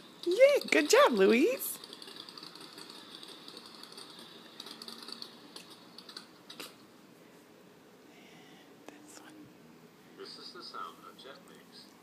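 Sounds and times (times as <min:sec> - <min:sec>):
faint rapid ticking: 0:00.1 - 0:06.3.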